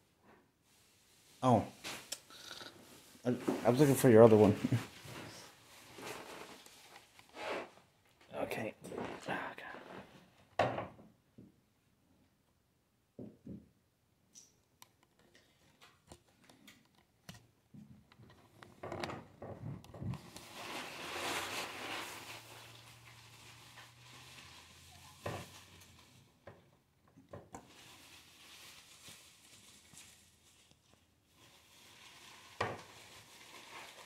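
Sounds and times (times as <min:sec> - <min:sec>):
fabric rubbing on microphone: 0:02.9 - 0:07.8, 0:20.0 - 0:26.2
small clicks and knocks: 0:14.3 - 0:20.2.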